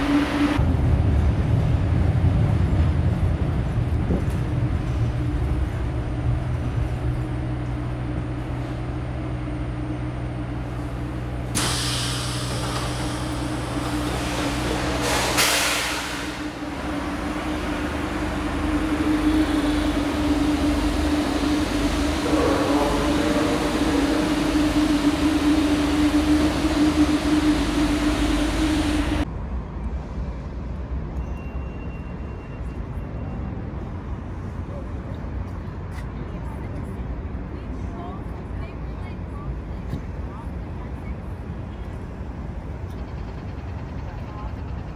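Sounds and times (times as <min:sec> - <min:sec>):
subway train running: 0:00.0 - 0:44.9
station noise: 0:04.8 - 0:29.2
air hiss: 0:11.6 - 0:16.6.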